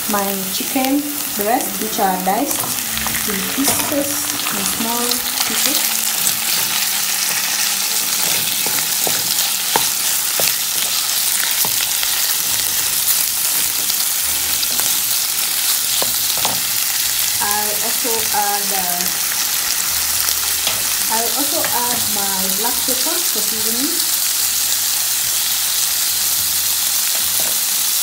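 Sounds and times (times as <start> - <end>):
food sizzling in hot oil: 0.0 - 28.0
wooden spatula scraping pan: 5.4 - 12.8.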